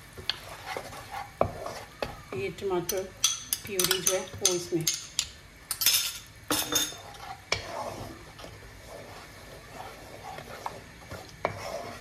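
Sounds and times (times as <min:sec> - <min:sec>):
wooden spatula scraping pan: 0:00.0 - 0:03.0, 0:06.6 - 0:12.0.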